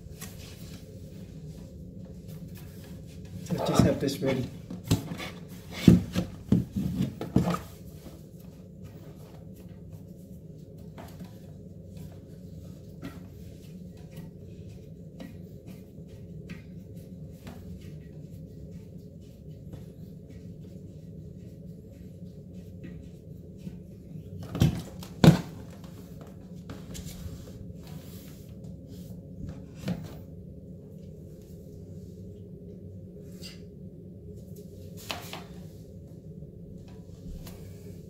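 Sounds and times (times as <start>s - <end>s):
steady low hum: 0.0s - 38.0s.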